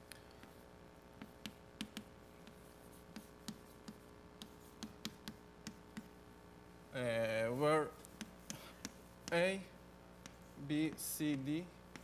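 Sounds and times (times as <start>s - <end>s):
faint steady hum: 0.0s - 12.0s
chalk tapping on blackboard: 1.2s - 6.1s, 8.0s - 9.5s, 10.2s - 12.0s.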